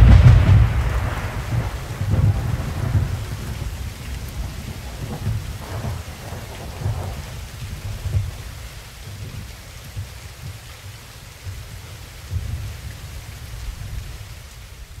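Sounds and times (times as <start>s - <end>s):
low rolling thunder: 0.0s - 10.6s
heavy rain falling: 0.0s - 15.0s.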